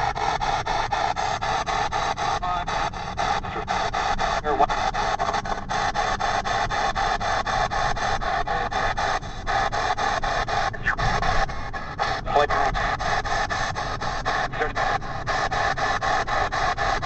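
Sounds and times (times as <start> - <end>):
radio static hiss sweeping: 4.4 - 5.6, 10.6 - 11.5, 12.2 - 12.8, 14.4 - 16.9
snatches of radio sound: 4.4 - 5.6, 10.8 - 11.4, 12.2 - 12.8, 14.4 - 15.0.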